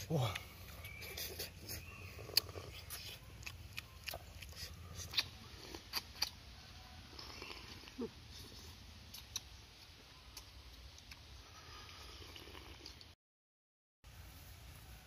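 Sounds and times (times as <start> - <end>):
wet lip smacks: 2.3 - 6.4, 9.1 - 9.5.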